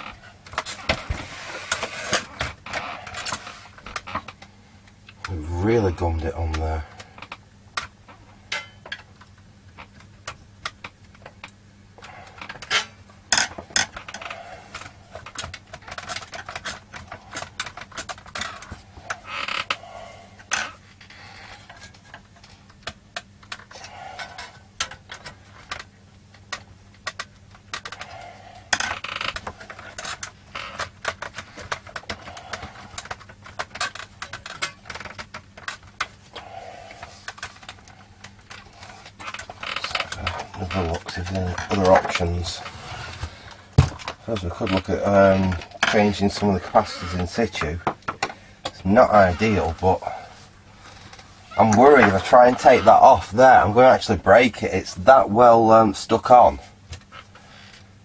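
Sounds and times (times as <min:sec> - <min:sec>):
clicks and scrapes of handled metal parts: 0:08.5 - 0:09.3, 0:20.4 - 0:50.2.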